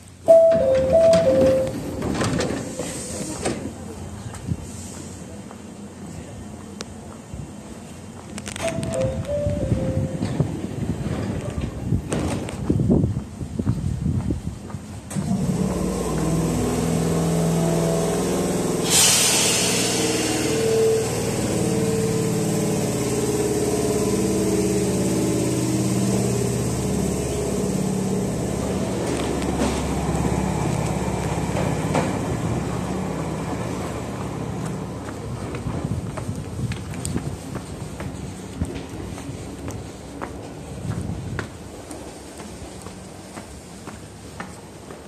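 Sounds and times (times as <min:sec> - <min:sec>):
electric train motors humming: 0:15.1 - 0:37.0.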